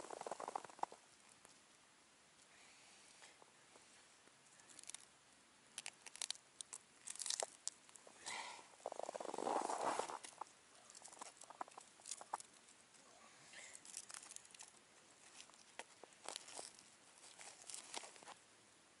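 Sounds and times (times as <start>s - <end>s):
crackling rustle: 0.0s - 18.5s
light clicks and rustles of hands: 2.4s - 5.1s, 10.1s - 18.4s.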